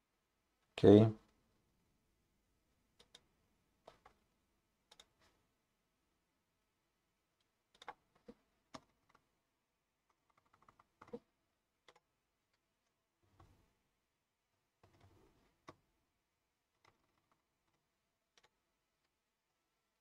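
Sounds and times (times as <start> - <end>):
computer mouse clicks: 3.0 - 4.2, 4.9 - 5.3, 7.4 - 9.2, 10.1 - 11.2, 11.8 - 12.1, 16.8 - 19.1.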